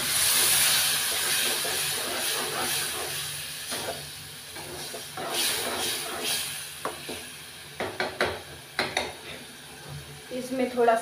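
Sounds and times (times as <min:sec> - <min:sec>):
masala sizzling in pan: 0:00.0 - 0:11.0
spoon scraping and knocking pan: 0:04.6 - 0:07.2.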